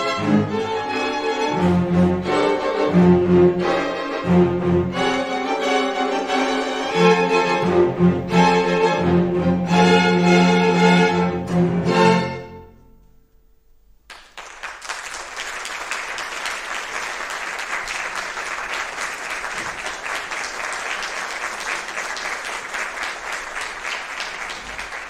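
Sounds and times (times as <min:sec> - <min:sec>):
string orchestra note: 0:00.0 - 0:13.2
audience applause: 0:14.1 - 0:25.0.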